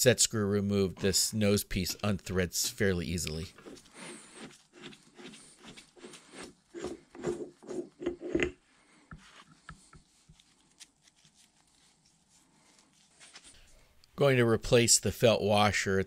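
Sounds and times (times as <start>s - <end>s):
metal rubbing on rags and wood: 1.8s - 8.4s.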